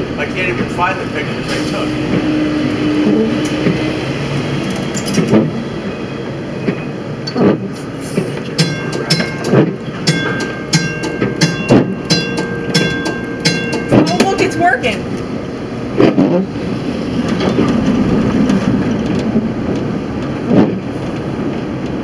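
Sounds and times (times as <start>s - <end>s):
streetcar rumbling on track: 0.0s - 22.0s
quick metallic ringing ticks: 8.6s - 14.6s.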